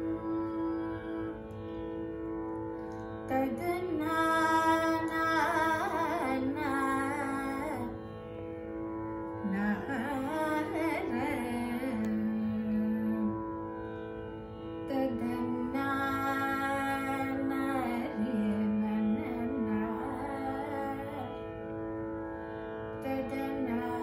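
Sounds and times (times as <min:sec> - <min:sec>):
woman singing: 0:00.0 - 0:01.6, 0:03.3 - 0:08.0, 0:09.4 - 0:13.5, 0:14.8 - 0:21.5, 0:23.0 - 0:24.0
electronic tanpura drone: 0:00.0 - 0:24.0.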